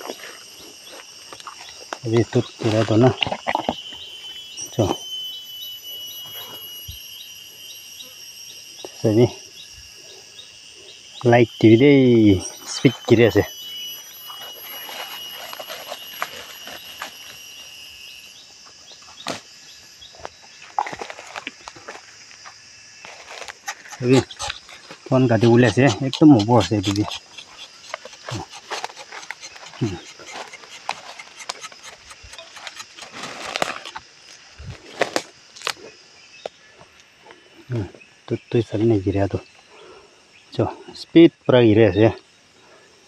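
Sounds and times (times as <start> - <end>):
high insect calls: 0.0 - 43.0
knife scraping bark: 14.2 - 17.4, 23.0 - 35.8
footsteps through undergrowth: 14.2 - 17.6, 20.1 - 25.1.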